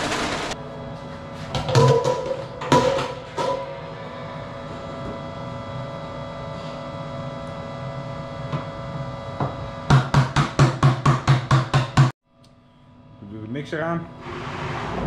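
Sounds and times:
steady hum: 0.0s - 10.3s
bucket knocking on metal rim: 1.6s - 3.2s.

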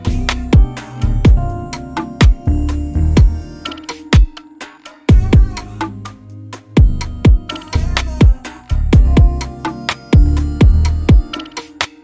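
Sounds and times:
held synth notes: 0.0s - 4.5s
deep kick drum hits: 0.6s - 1.6s, 2.2s - 3.4s, 6.8s - 7.4s, 9.0s - 9.4s.

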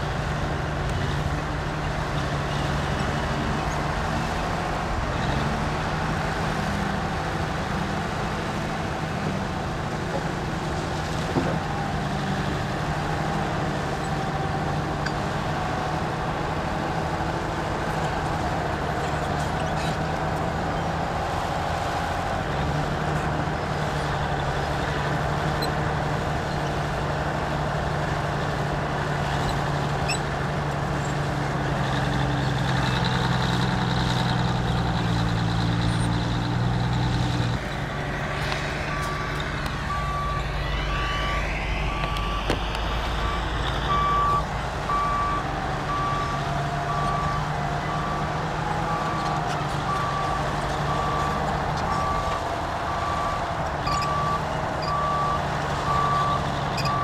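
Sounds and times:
heavy diesel engine running: 0.0s - 57.0s
reversing alarm beeping: 37.6s - 57.0s.

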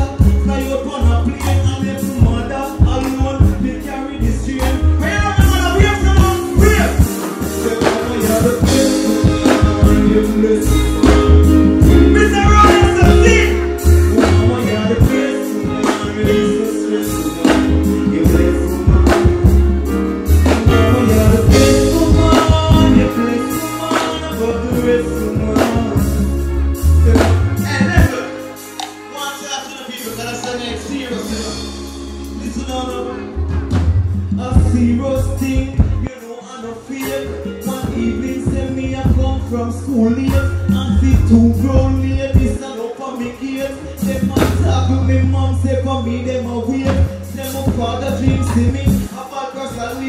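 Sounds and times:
loud bass-heavy beat: 0.0s - 28.2s, 30.3s - 36.1s, 37.0s - 50.0s
person vocalling into a microphone: 43.8s - 49.2s.

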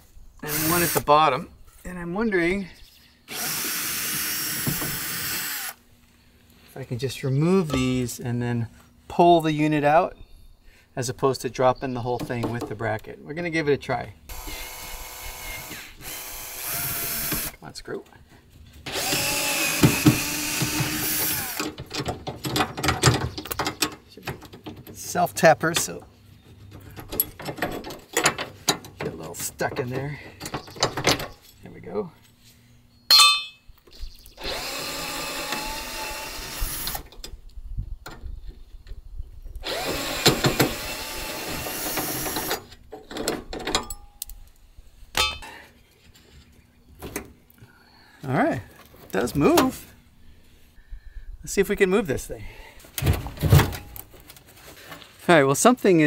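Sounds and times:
power drill running: 0.5s - 1.0s, 3.3s - 5.8s, 14.3s - 17.6s, 18.9s - 21.6s, 34.4s - 37.0s, 39.6s - 42.6s
cordless driver spinning screw: 14.3s - 17.5s, 18.9s - 21.6s, 34.4s - 37.0s, 39.6s - 42.6s
clicks and rattles of metal: 21.6s - 31.7s, 41.9s - 44.5s.

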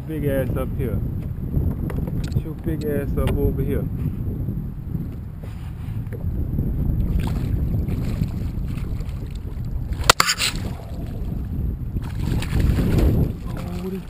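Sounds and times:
wind buffeting microphone: 0.0s - 14.0s
fish splashing at surface: 12.0s - 14.0s.

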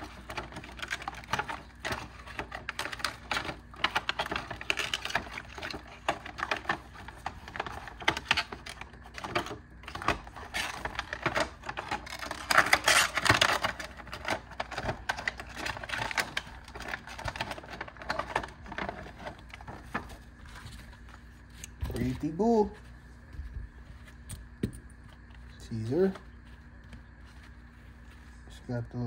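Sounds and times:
plastic items clicking and rustling: 0.0s - 22.5s.

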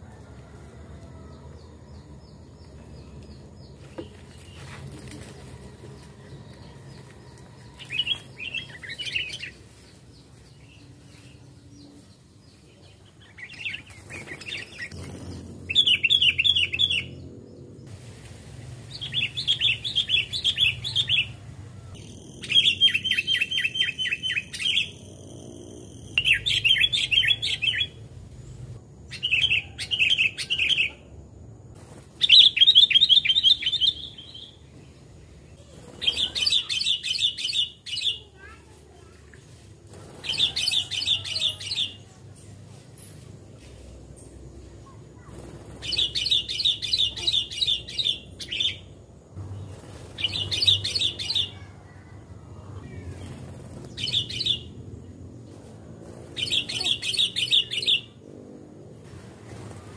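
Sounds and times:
bulbul chirping: 22.0s - 27.7s.

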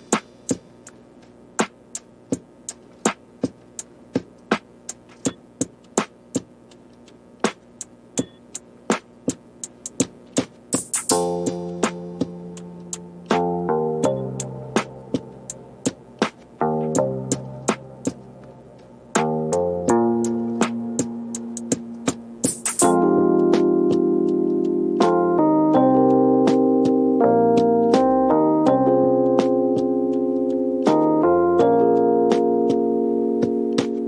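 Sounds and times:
sharp clicking beat: 0.0s - 34.0s.

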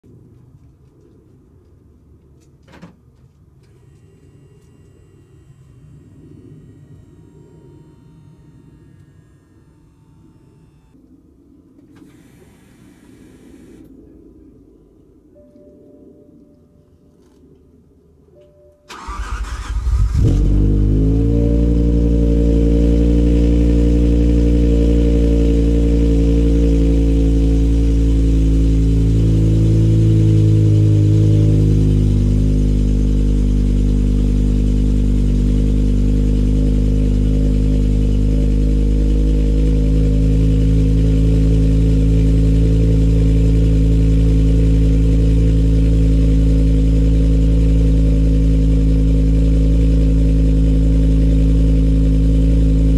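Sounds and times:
car engine cranking and starting: 11.8s - 13.9s, 18.9s - 52.9s
car engine loud fast idle: 18.9s - 52.9s.

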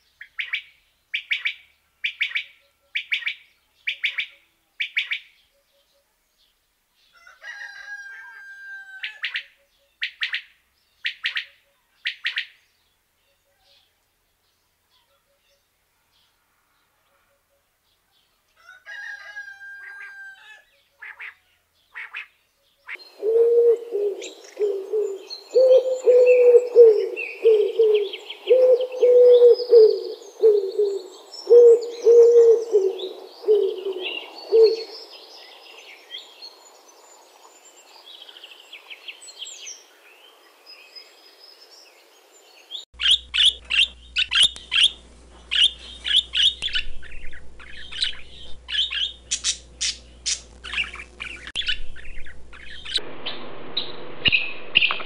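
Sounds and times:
small birds chirping: 0.0s - 7.3s, 9.1s - 17.2s, 20.7s - 55.0s
pigeons cooing: 23.0s - 35.0s.

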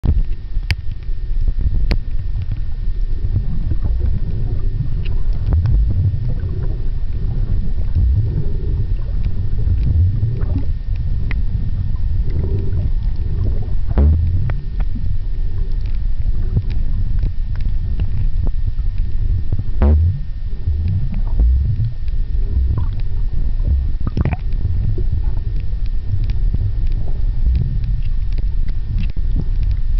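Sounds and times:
underwater water rumble: 0.0s - 29.9s
faint clicks: 0.1s - 1.1s, 8.8s - 11.5s, 12.1s - 15.0s, 15.7s - 20.0s, 20.8s - 29.9s.

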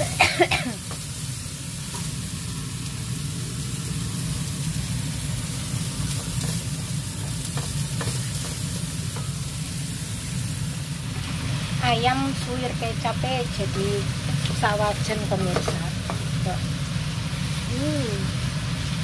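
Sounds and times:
vegetables sizzling in hot oil: 0.0s - 19.0s
wooden spatula tapping pan: 7.2s - 9.4s, 15.4s - 16.3s.

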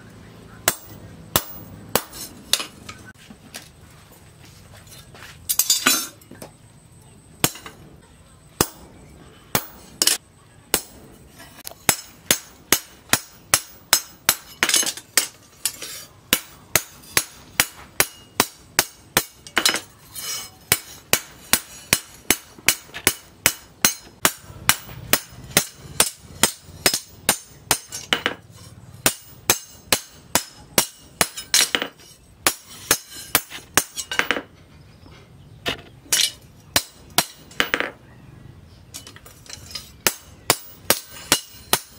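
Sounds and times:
hammer clinking on steel blade: 5.5s - 6.2s, 10.8s - 28.4s, 29.1s - 34.4s, 39.0s - 41.9s.

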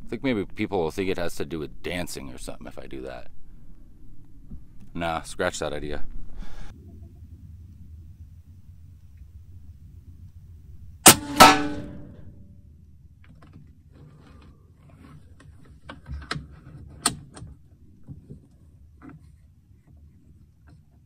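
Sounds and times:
air rifle shot: 11.0s - 12.2s
bullet striking with ringing: 11.0s - 12.3s.

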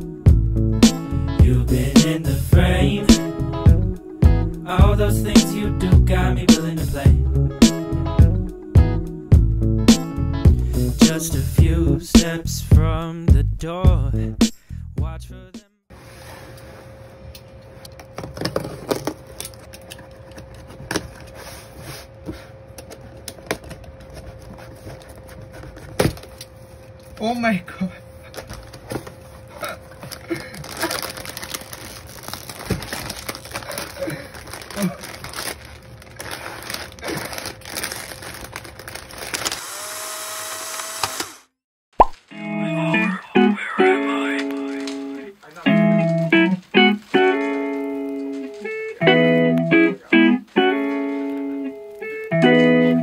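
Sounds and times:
plastic packets crinkling: 28.2s - 39.8s
sharp pop: 42.0s - 42.2s.

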